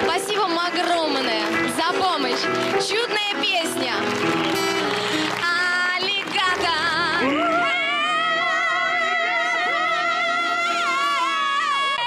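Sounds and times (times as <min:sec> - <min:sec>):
instrumental backing: 0:00.0 - 0:11.6
woman singing with vibrato: 0:05.4 - 0:12.0.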